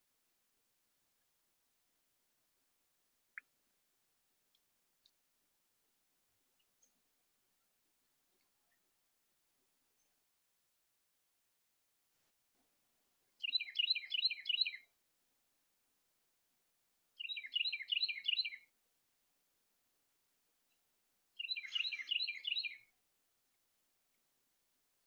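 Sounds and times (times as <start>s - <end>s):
songbird singing: 13.3s - 14.9s, 17.2s - 18.7s, 21.4s - 23.0s.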